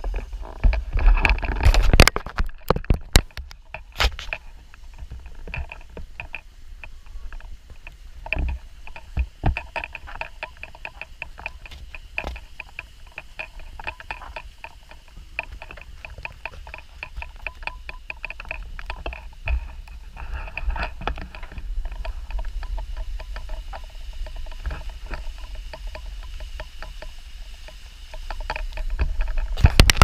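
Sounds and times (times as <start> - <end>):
footsteps on trail and steps: 0.0 - 30.0
low rumble of moving camera: 0.0 - 30.0
camera knocks and rustles: 0.6 - 14.5, 28.2 - 30.0.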